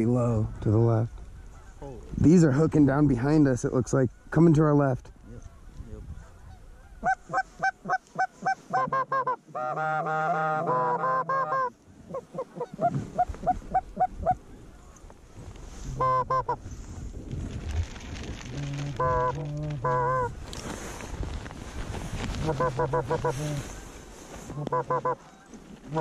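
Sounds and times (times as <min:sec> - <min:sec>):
goose honks and clucks: 0:06.2 - 0:14.4, 0:15.9 - 0:16.6, 0:19.0 - 0:20.3, 0:22.4 - 0:23.6, 0:24.5 - 0:26.0.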